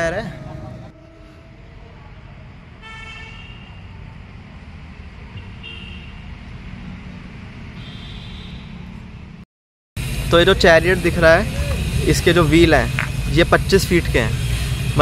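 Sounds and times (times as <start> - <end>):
steady low rumble: 0.0 - 2.9, 10.0 - 15.0
vehicle horn honking: 2.8 - 4.0, 5.4 - 6.2, 7.8 - 8.8.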